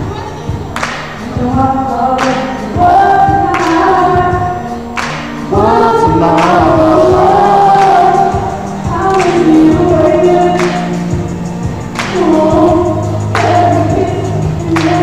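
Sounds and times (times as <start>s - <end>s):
backing track with slow beat: 0.0s - 15.0s.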